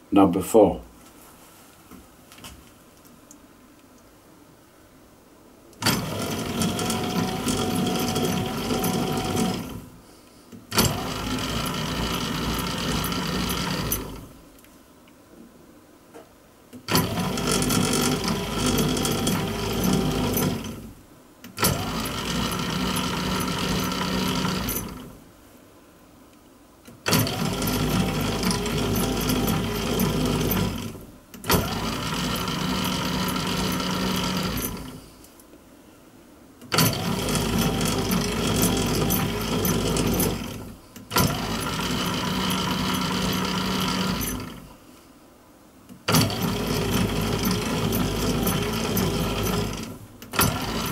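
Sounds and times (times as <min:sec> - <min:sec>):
lathe running: 0:05.8 - 0:09.8, 0:10.8 - 0:14.3, 0:16.9 - 0:20.8, 0:21.6 - 0:25.1, 0:27.1 - 0:34.9, 0:36.8 - 0:44.6, 0:46.1 - 0:50.9.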